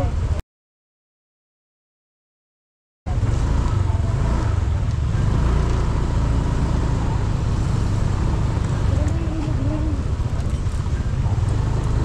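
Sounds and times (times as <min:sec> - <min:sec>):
traffic: 0:00.0 - 0:00.4, 0:03.1 - 0:12.0
scooter engine: 0:03.1 - 0:12.0.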